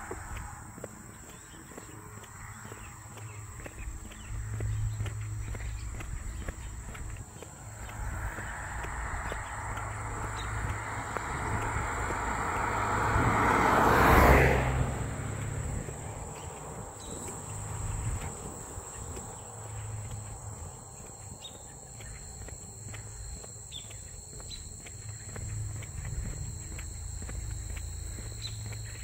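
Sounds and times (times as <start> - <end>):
faint chirps: 0.0 - 29.0
high-pitched insect trill: 0.0 - 29.0
car driving past: 2.3 - 20.6.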